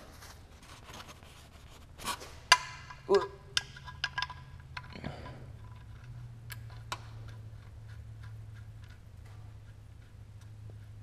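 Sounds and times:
metal bolt clicking: 0:02.5 - 0:07.4
low hum: 0:02.5 - 0:11.0.

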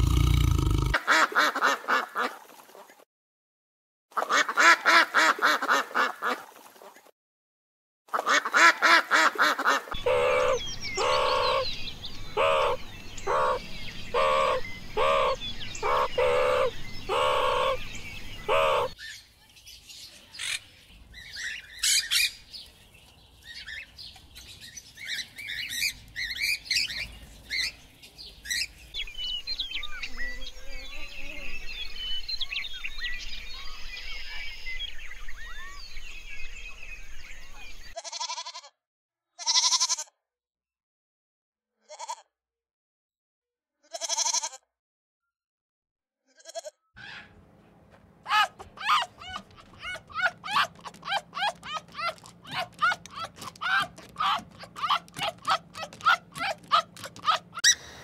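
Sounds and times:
ducks chattering: 0:00.0 - 0:02.3, 0:08.2 - 0:11.7, 0:12.3 - 0:19.0, 0:48.2 - 0:58.0
ducks honking quacks: 0:00.9 - 0:02.4, 0:08.2 - 0:11.5, 0:48.2 - 0:58.0
birds chirping and twittering: 0:09.6 - 0:38.0, 0:47.0 - 0:58.0.

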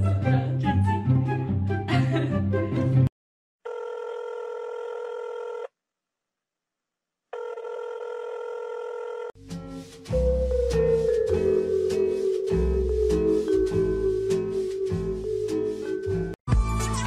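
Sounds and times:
music: 0:00.0 - 0:03.1, 0:09.4 - 0:17.0
steady electronic tone: 0:10.2 - 0:16.4.

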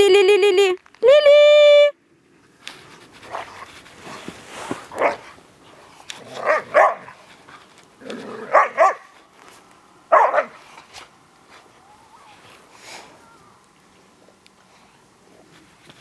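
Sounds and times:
dogs barking: 0:06.4 - 0:07.2, 0:08.5 - 0:09.1, 0:10.1 - 0:10.6.

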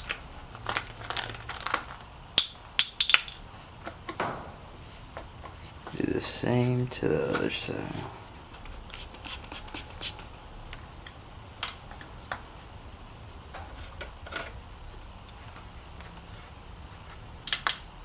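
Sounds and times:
faint low hum: 0:00.0 - 0:18.0.

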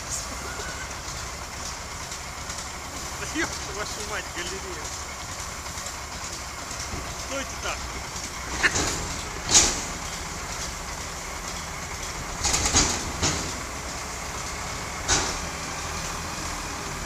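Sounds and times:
heavy diesel engines under load: 0:00.0 - 0:17.0
metal bangs and clanks: 0:06.7 - 0:15.9.

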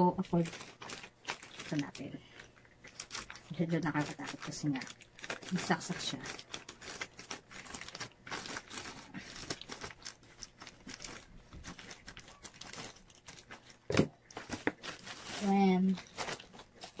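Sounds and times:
plastic crinkling: 0:00.0 - 0:17.0
scissors cutting plastic bag: 0:00.2 - 0:02.1, 0:02.9 - 0:17.0.

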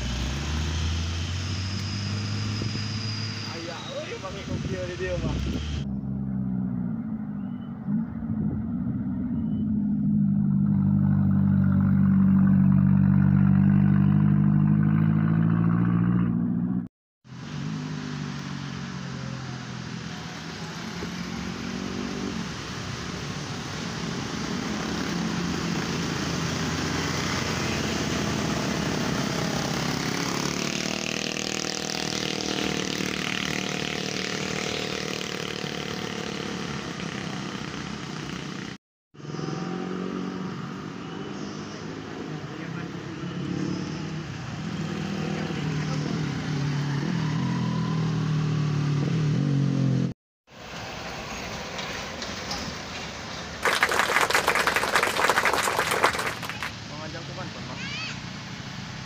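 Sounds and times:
motorcycle passing: 0:00.0 - 0:22.9, 0:24.4 - 0:50.1, 0:53.6 - 0:59.0
cars passing: 0:00.0 - 0:59.0
truck engine deep drone: 0:05.3 - 0:19.0.

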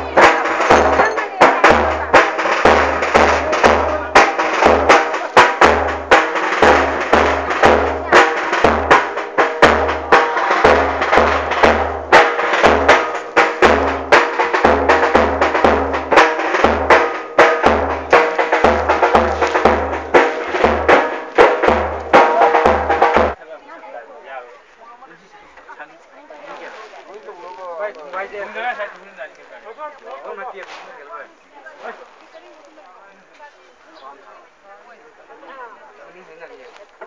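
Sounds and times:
deep drum beating: 0:00.0 - 0:23.4
music with drums: 0:00.0 - 0:23.4.

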